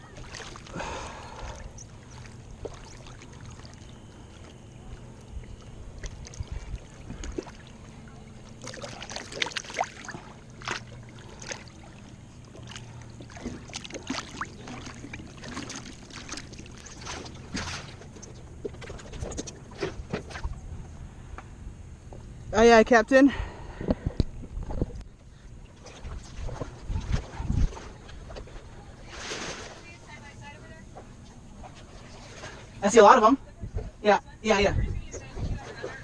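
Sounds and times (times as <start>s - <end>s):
water sloshing and splashing: 0.0s - 21.1s, 24.5s - 34.0s, 35.0s - 36.0s
small splashes and drips: 0.1s - 0.8s, 1.4s - 19.4s.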